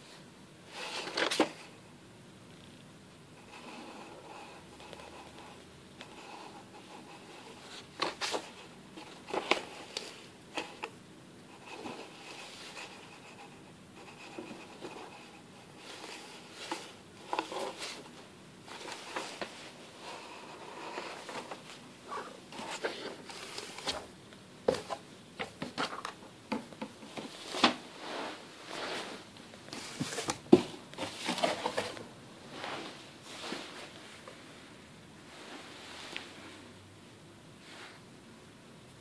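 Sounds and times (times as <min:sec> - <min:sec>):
cardboard boxes scraping on carpet: 0:27.4 - 0:30.3, 0:31.0 - 0:33.9.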